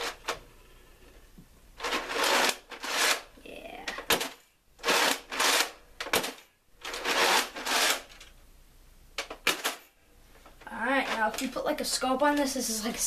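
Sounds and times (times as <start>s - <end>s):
plastic toy rustling and rattling: 1.8s - 8.4s, 10.5s - 13.0s.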